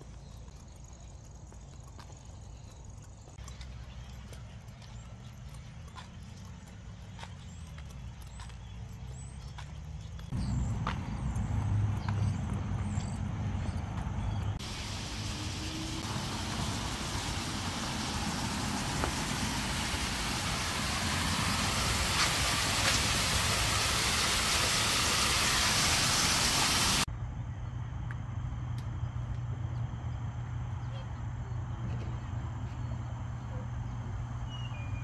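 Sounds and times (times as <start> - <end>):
waterfall splashing on concrete: 14.6 - 27.1.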